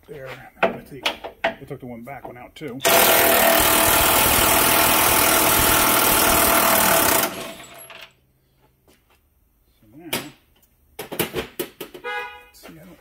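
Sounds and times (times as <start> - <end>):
impact wrench running: 2.8 - 8.0.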